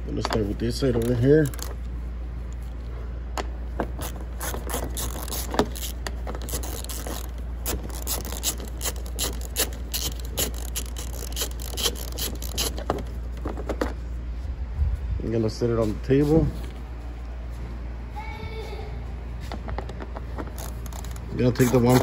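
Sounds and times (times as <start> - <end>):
steady low hum: 0.0 - 22.0
hand ratchet clicking: 0.8 - 1.8, 4.0 - 13.1, 20.4 - 22.0.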